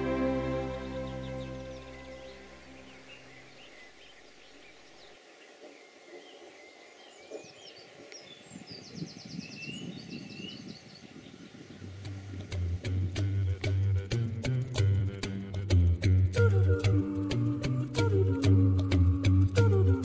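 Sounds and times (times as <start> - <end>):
bird trill: 0.0 - 4.8
songbirds chirping: 0.0 - 14.2.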